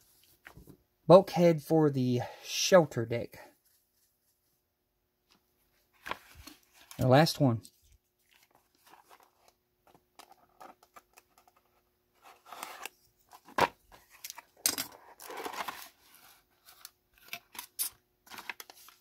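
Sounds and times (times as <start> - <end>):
cardboard scraping and rustling: 8.4 - 9.6, 12.2 - 14.2, 15.0 - 16.8.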